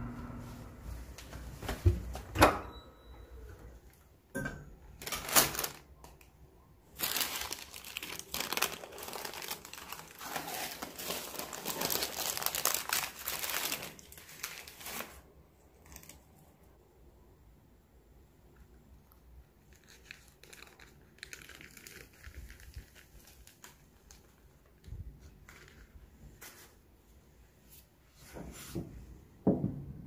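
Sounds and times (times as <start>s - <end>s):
crinkling and rustling: 4.8s - 6.3s, 6.9s - 16.5s, 19.6s - 26.9s.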